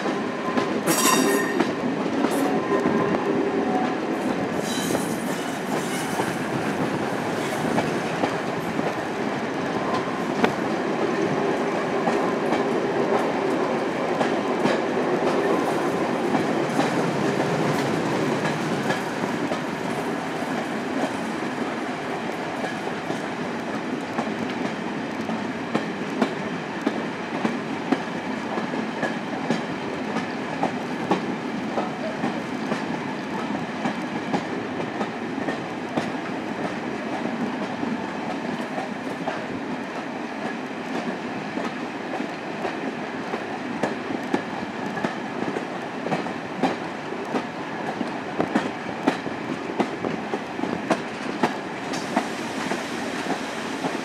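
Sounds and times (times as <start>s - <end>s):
wind noise: 0.0s - 31.6s
train wheels rolling: 0.0s - 54.0s.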